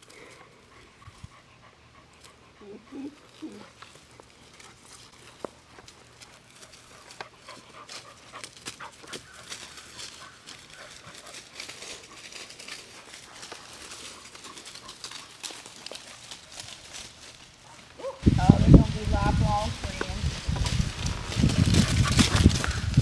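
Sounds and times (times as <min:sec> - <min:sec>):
puppies scuffling in dry leaves: 0:00.0 - 0:01.2, 0:02.0 - 0:23.0
small dog sounds: 0:00.2 - 0:05.0, 0:17.6 - 0:18.3.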